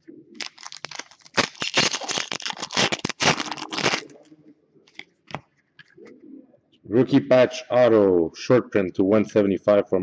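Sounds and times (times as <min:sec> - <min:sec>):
cards rustling and slapping: 0:00.4 - 0:04.2, 0:04.9 - 0:06.0.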